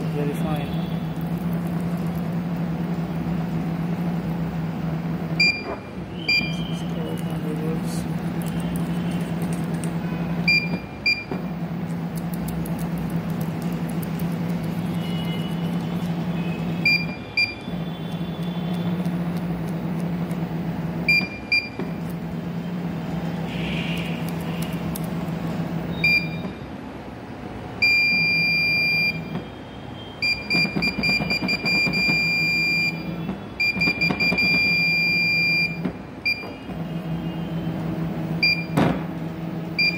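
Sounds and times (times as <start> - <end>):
short electronic beeps: 5.4 - 6.9, 10.4 - 11.3, 16.4 - 18.0, 25.9 - 26.6, 30.0 - 37.5, 38.4 - 38.8.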